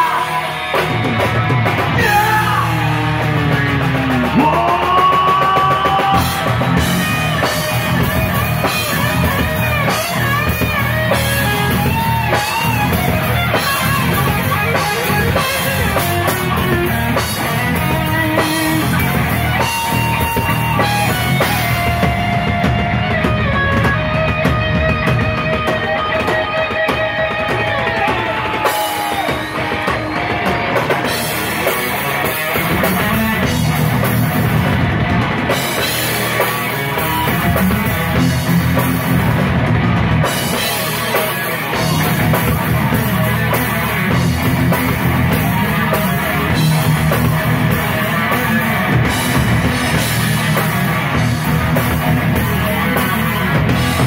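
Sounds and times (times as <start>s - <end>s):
heavy metal band playing live: 0.0s - 54.0s
lead guitar sliding and bending: 0.0s - 54.0s.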